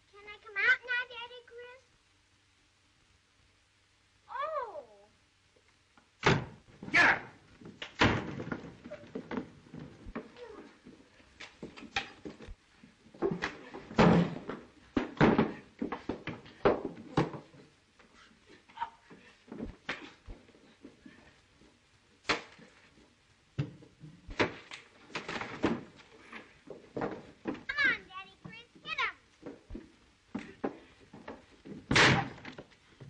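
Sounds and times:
bodies crashing against furniture: 6.2 - 12.4, 13.0 - 17.7, 23.6 - 27.9, 29.5 - 32.8
punches thudding and smacking: 31.8 - 32.5.

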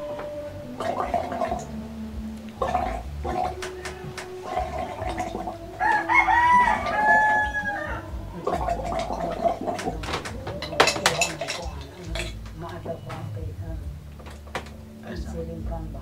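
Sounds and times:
water bubbling through tube: 0.6 - 12.4
rooster crowing: 3.6 - 4.4, 5.6 - 8.4.

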